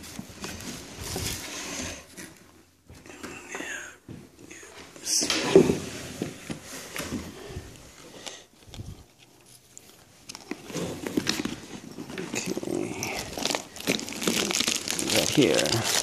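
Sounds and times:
cloth bag rustling: 0:08.6 - 0:16.0.

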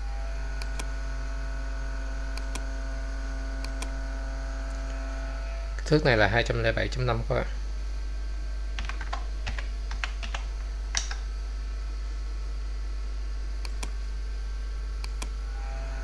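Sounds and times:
low electrical hum: 0:00.0 - 0:16.0
computer keyboard key clicks: 0:08.8 - 0:11.2.

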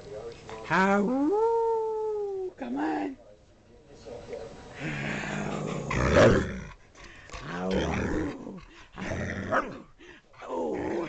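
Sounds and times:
dog growling in play: 0:04.8 - 0:06.8, 0:07.4 - 0:09.9, 0:10.5 - 0:11.0.

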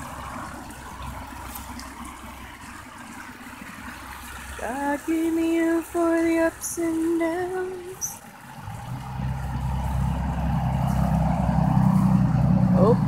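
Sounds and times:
low steady motor hum: 0:00.0 - 0:13.0
woman singing unaccompanied: 0:04.6 - 0:08.2.

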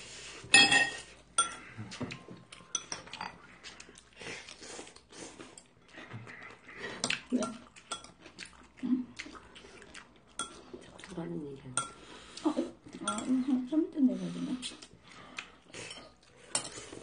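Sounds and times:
dishes and cutlery clinking: 0:00.5 - 0:03.5, 0:10.4 - 0:10.6, 0:11.8 - 0:12.0, 0:12.9 - 0:13.4, 0:15.8 - 0:17.0
chewing mouth noises: 0:02.1 - 0:11.3.

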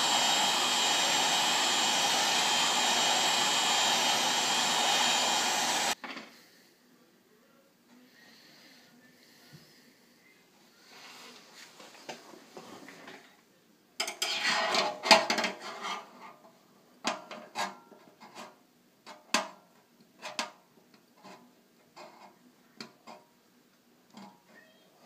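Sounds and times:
metal rod scraping inside tank: 0:14.2 - 0:16.1.

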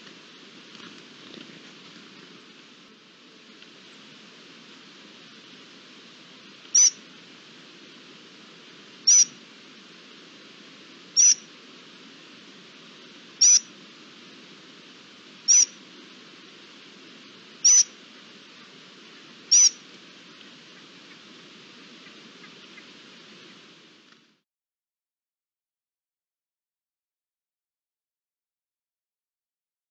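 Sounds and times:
background hiss: 0:00.0 - 0:24.4
bird high-pitched call: 0:06.7 - 0:07.0, 0:09.1 - 0:09.4, 0:11.2 - 0:11.5, 0:13.4 - 0:13.7, 0:15.5 - 0:15.8, 0:17.6 - 0:18.0, 0:19.5 - 0:19.8.

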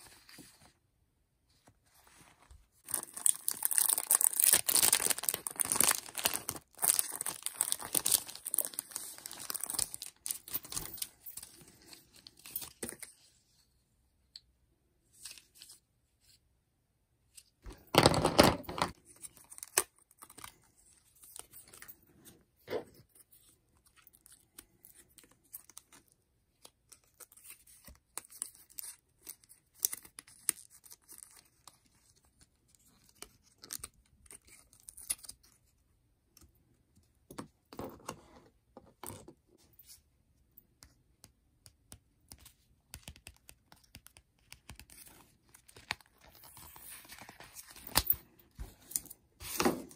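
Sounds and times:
paper rustling and crinkling: 0:01.6 - 0:13.2.

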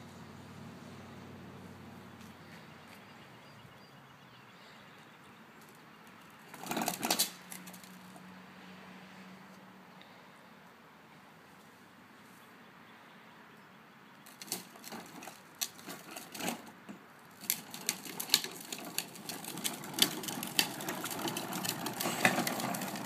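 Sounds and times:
plastic wheels rattling on asphalt: 0:05.6 - 0:08.3, 0:14.2 - 0:23.0.

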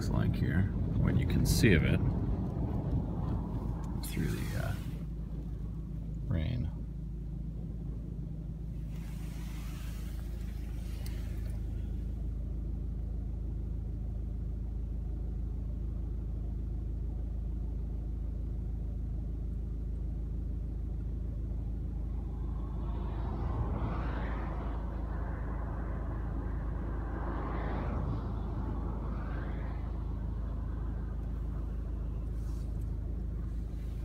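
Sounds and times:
car cabin rumble: 0:00.0 - 0:14.0, 0:19.8 - 0:34.0
wind gusting hiss: 0:01.4 - 0:05.8, 0:21.8 - 0:34.0.

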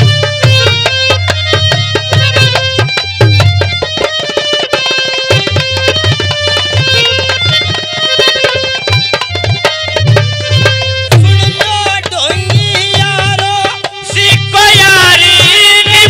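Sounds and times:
held melodic tones: 0:00.0 - 0:16.0
man singing: 0:11.1 - 0:16.0.

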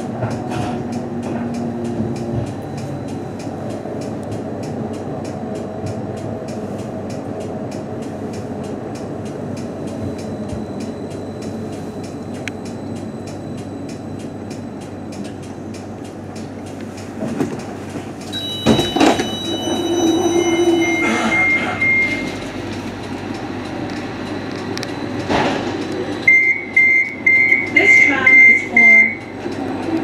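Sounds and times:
tram cab noise: 0:00.0 - 0:30.0
short beep: 0:18.3 - 0:22.4, 0:26.2 - 0:29.3
rapid pulsing beep: 0:18.3 - 0:22.5, 0:26.2 - 0:29.4
high electronic tones: 0:18.4 - 0:22.4
clunk: 0:18.5 - 0:19.7.

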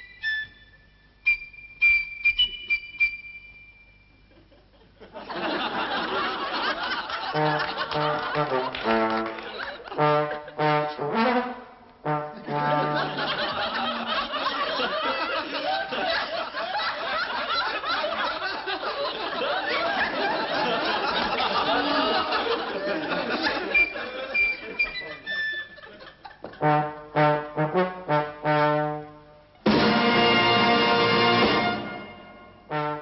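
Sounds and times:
brass band playing: 0:07.2 - 0:14.2, 0:26.6 - 0:33.0.

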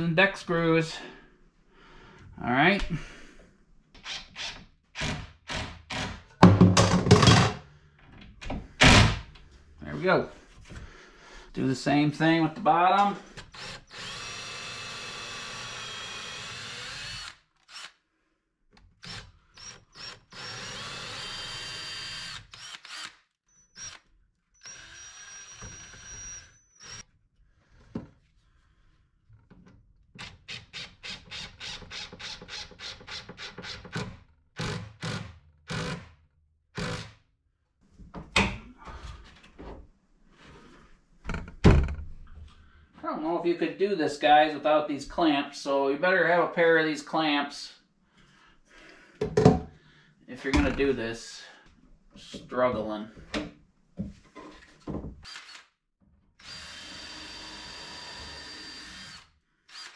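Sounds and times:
cordless drill driving screws: 0:13.4 - 0:18.0, 0:19.0 - 0:27.0, 0:55.2 - 0:55.7, 0:56.4 - 0:59.9.

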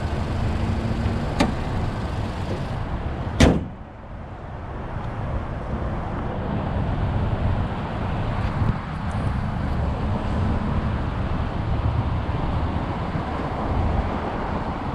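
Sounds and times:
car engine idling: 0:00.0 - 0:03.1
car hood slamming shut: 0:01.4 - 0:01.6, 0:03.4 - 0:03.8.

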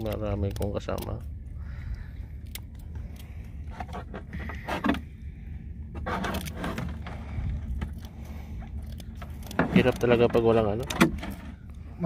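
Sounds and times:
steady low rumble: 0:00.0 - 0:12.0
handling clicks and scrapes: 0:02.4 - 0:05.2, 0:05.9 - 0:11.8.

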